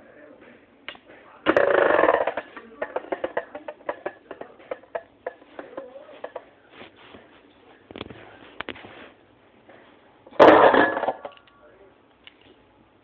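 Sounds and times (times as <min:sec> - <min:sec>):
spinning tops grinding rattle: 0:01.5 - 0:04.2.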